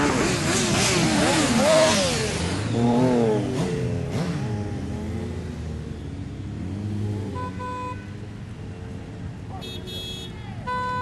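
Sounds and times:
motorcycles revving: 0.0 - 11.0.

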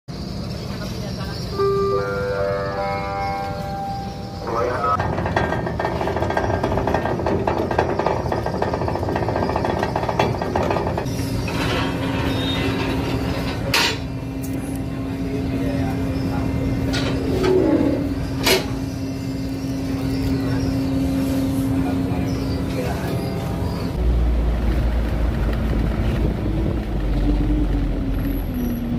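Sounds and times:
ferry machinery rattling and humming: 0.1 - 28.9
metal stairway clanking: 4.8 - 14.1.

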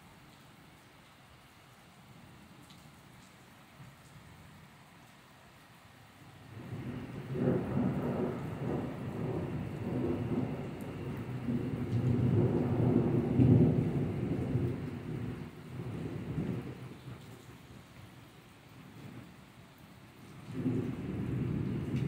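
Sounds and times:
thunder rolling: 6.5 - 16.9, 20.4 - 22.0.

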